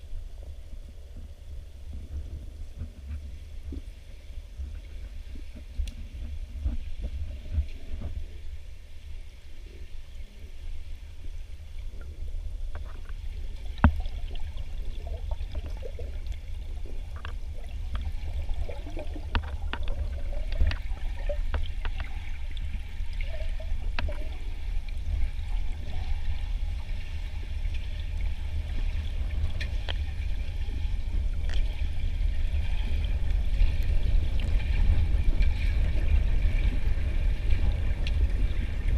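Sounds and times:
low underwater rumble: 0.0 - 38.9
water gurgling: 0.0 - 38.9.

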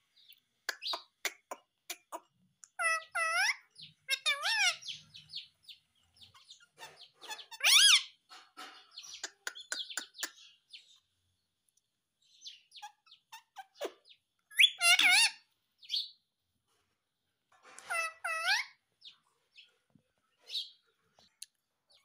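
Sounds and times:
parakeet clicks and chirps: 0.2 - 5.0, 8.8 - 10.6
parakeet loud arching calls: 2.8 - 8.2, 12.5 - 16.1, 17.8 - 18.8.

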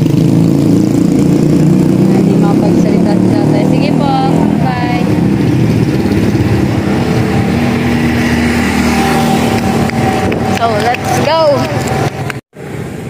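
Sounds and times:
person speaking: 2.1 - 5.2, 10.4 - 12.0.

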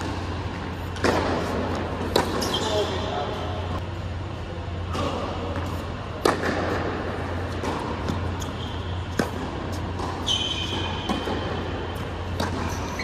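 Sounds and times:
racket hitting tennis ball: 0.0 - 2.8, 4.9 - 13.0
ventilation hum: 0.0 - 13.0
sneaker squeak: 2.1 - 3.6, 8.0 - 13.0.

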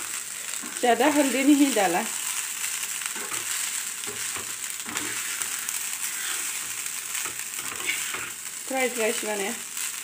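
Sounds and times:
rice sizzling in a pan: 0.0 - 10.0
spoon scraping a pan: 3.1 - 8.4.

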